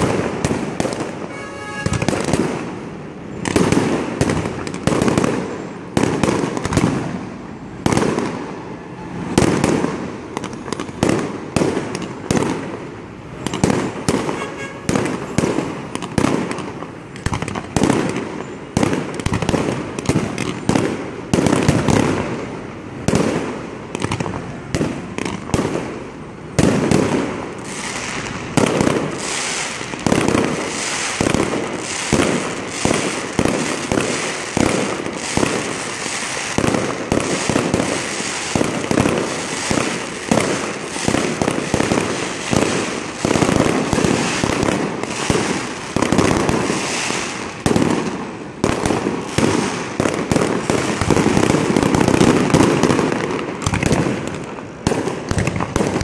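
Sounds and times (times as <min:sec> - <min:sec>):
fireworks bangs: 0:00.0 - 0:56.0
fireworks small pops: 0:03.4 - 0:07.0, 0:09.4 - 0:22.2, 0:23.1 - 0:25.9, 0:47.6 - 0:56.0.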